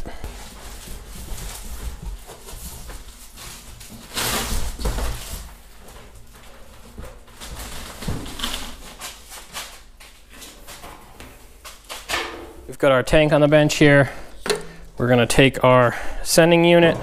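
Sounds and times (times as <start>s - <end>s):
scraping and rustling: 0.3s - 12.1s.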